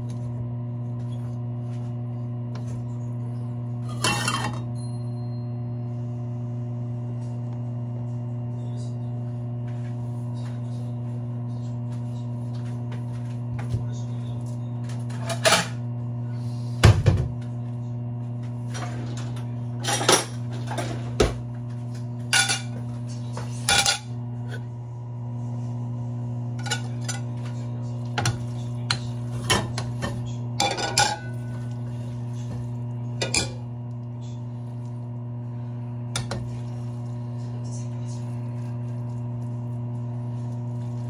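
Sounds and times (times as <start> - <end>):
steady low hum: 0.0 - 41.0
pots and pans clinking: 3.9 - 4.9, 22.3 - 22.8, 23.6 - 24.1, 26.6 - 27.4, 28.2 - 31.6, 33.2 - 33.6.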